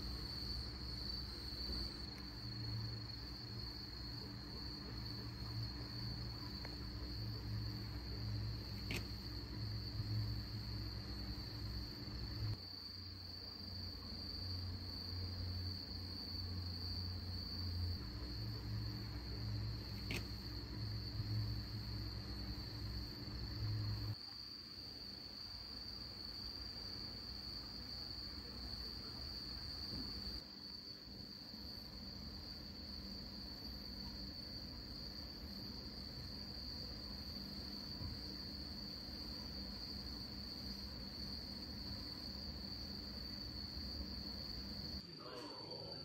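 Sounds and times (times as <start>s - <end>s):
insects chirring: 0.0s - 46.0s
brief click: 8.8s - 9.1s.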